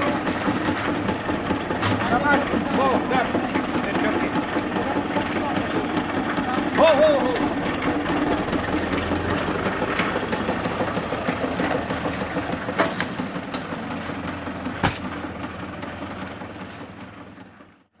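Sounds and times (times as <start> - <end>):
diesel tractor engine running: 0.0 - 18.0
sharp knocks: 14.8 - 15.2.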